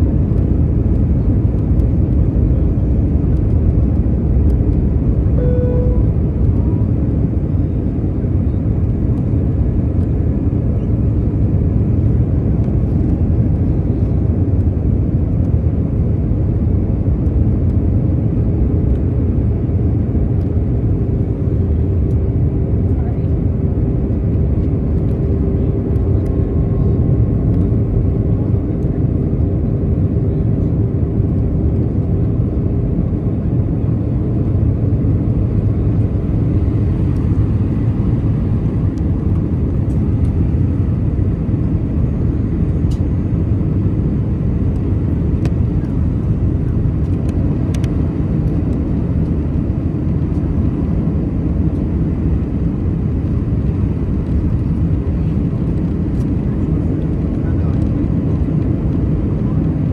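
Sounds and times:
faint hum: 0.0 - 9.4
jet engine rumble: 0.0 - 59.9.

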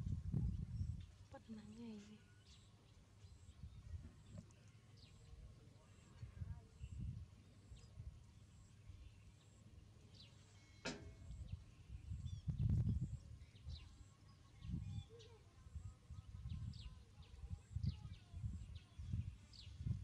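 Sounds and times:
sharp click: 10.8 - 11.4.

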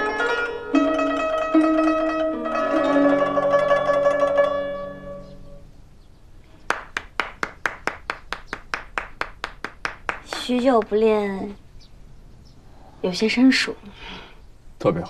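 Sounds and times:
plucked zither notes ringing: 0.0 - 5.7
person clapping hands: 6.6 - 11.0.

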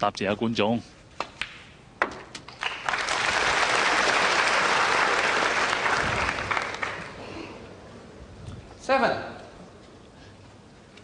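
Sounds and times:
audience clapping: 2.5 - 7.2.

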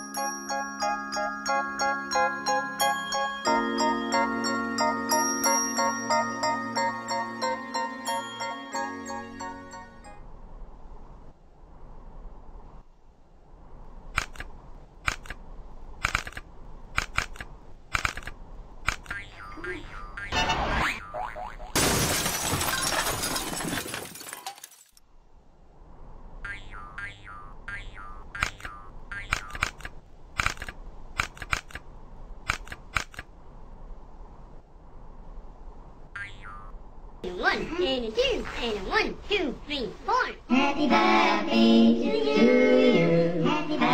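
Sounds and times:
faint low hum: 10.0 - 23.4
sharp clicks and clacks: 14.1 - 15.4, 16.0 - 19.2, 28.4 - 33.3
sharp dry clicks and taps: 28.4 - 31.8, 32.4 - 33.3.

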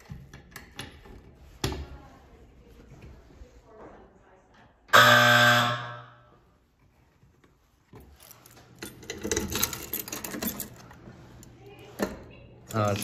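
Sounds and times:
fire alarm horn blast: 4.9 - 6.3
keys jangling and rattling: 8.1 - 11.0.

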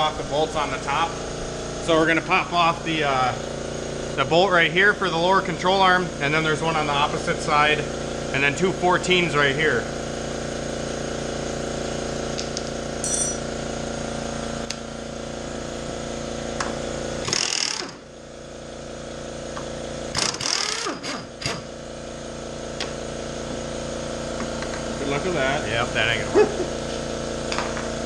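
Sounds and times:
steady mechanical hum: 0.0 - 28.0
impact wrench bursts: 16.6 - 18.1, 19.5 - 22.1.

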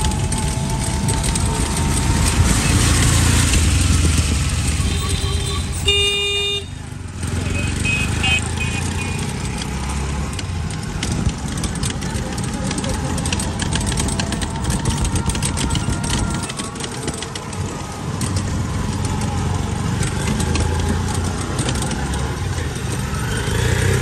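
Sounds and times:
small clicks and rattles: 0.0 - 2.6, 8.6 - 24.0
vehicle rumbling on wet road: 0.0 - 24.0.

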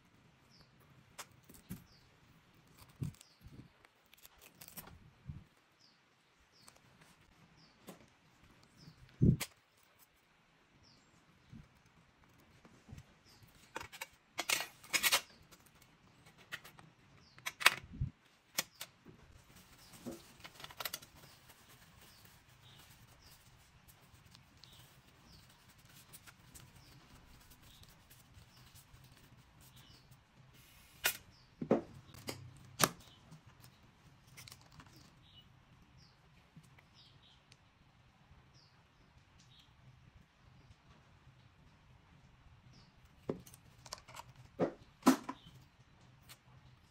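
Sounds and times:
clicks and scrapes of metal parts: 13.6 - 17.9, 43.3 - 45.5.

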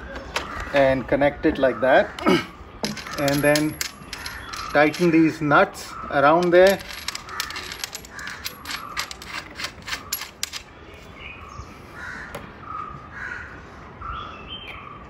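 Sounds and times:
wrench clicking: 2.9 - 5.2, 6.4 - 10.6
bird cawing: 7.1 - 9.1, 12.0 - 13.7.

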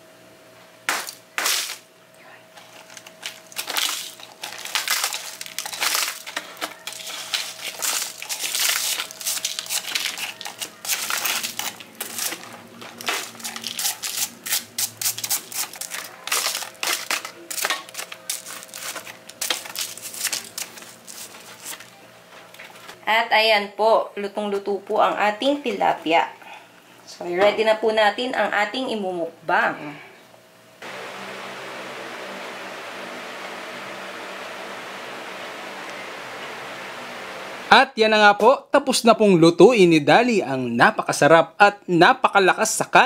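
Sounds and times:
knife cracking salt crust: 0.9 - 1.8.

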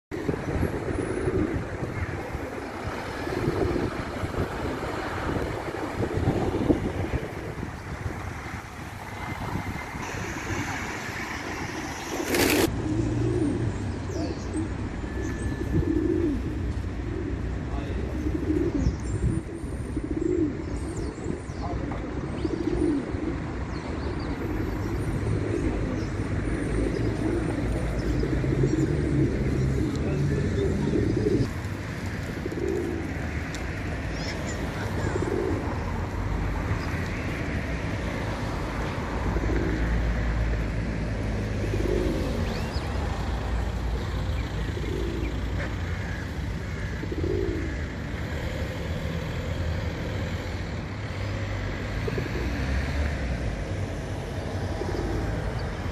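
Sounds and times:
pigeons cooing: 0.2 - 55.9.

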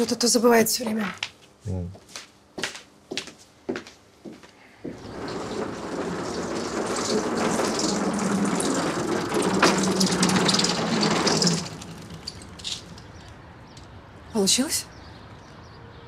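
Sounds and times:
lawn mower pushed on tiles: 4.9 - 13.2.

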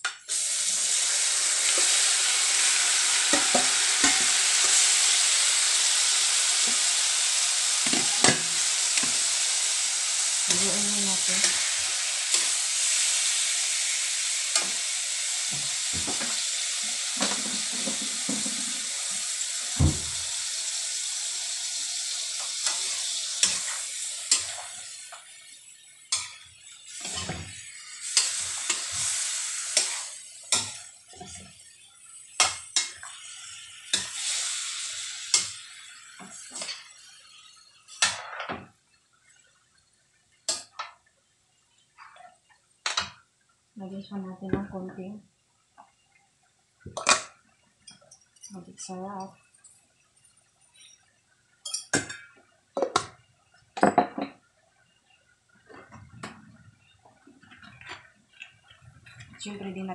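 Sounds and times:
meat sizzling in a wok: 0.0 - 39.7, 48.4 - 53.2
metal spatula scraping pan: 26.1 - 31.5.

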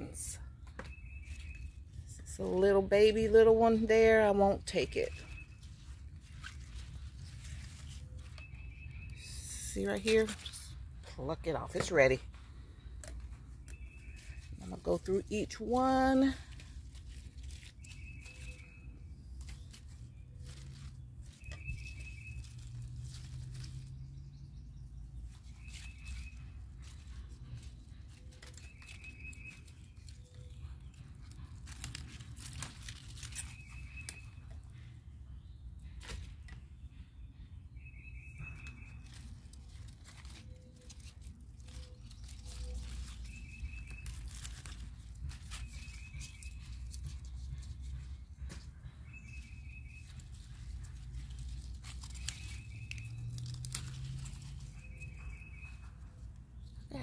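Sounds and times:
lettuce leaves snapping and rustling: 0.0 - 34.8, 35.8 - 36.6, 38.1 - 57.0
small bird trilled chirp: 0.8 - 1.8, 54.5 - 57.0.

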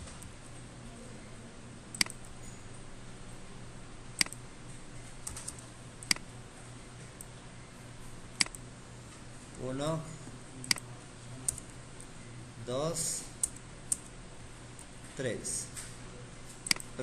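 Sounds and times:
low steady hum: 0.0 - 17.0
keyboard and mouse clicks: 1.9 - 2.2, 4.2 - 4.4, 5.2 - 6.3, 8.4 - 8.6, 16.6 - 17.0.

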